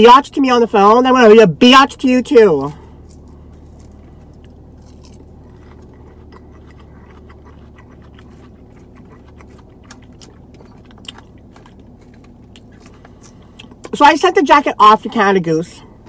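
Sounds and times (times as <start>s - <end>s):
car cabin hum: 0.0s - 16.0s
person chewing salad: 2.6s - 13.9s.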